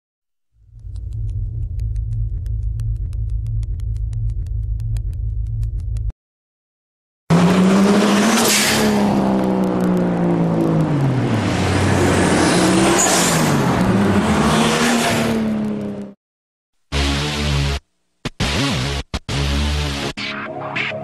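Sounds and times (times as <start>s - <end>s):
car engine revving: 7.3s - 16.2s.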